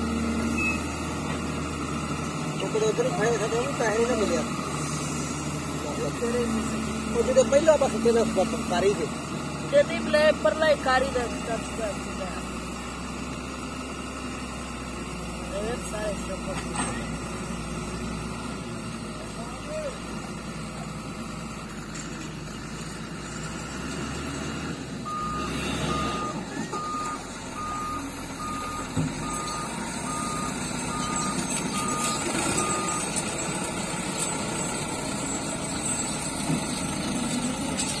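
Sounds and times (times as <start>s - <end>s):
diesel engines running: 0.0s - 38.0s
reversing alarm beeping: 0.4s - 1.0s, 25.0s - 33.5s.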